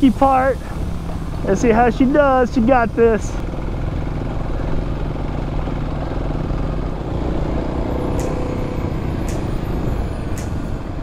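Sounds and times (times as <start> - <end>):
dirt bike engine: 0.0 - 11.0
wind and trail noise: 0.0 - 11.0
short sharp ticks: 8.2 - 8.4.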